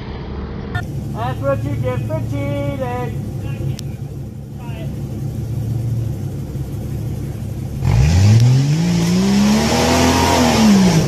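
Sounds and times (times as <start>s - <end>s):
suv engine revving: 3.1s - 11.0s.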